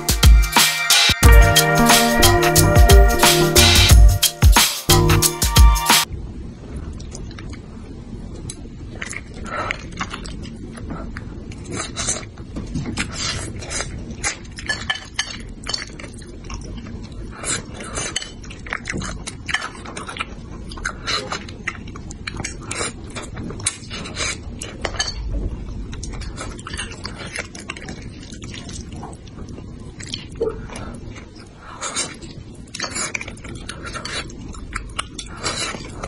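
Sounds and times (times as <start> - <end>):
wet chewing and mouth sounds: 6.8 - 7.7, 8.3 - 36.0.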